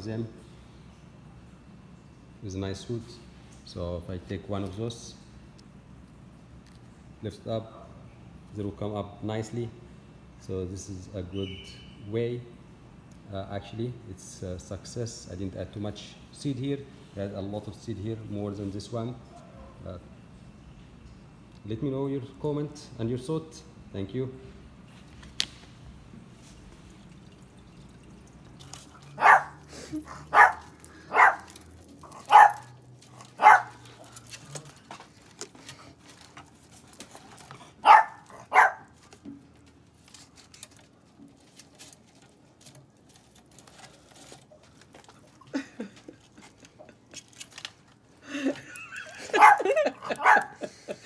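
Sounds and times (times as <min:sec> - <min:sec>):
dog barking: 0:19.3 - 0:19.8, 0:29.2 - 0:31.5, 0:32.1 - 0:32.8, 0:33.4 - 0:33.8, 0:37.8 - 0:38.9, 0:49.2 - 0:50.7.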